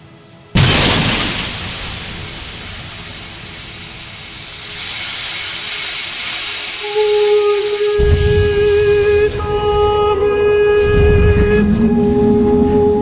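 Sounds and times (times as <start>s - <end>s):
car crash boom: 0.6s - 6.9s, 8.0s - 12.0s
long hissing rush: 0.6s - 13.0s.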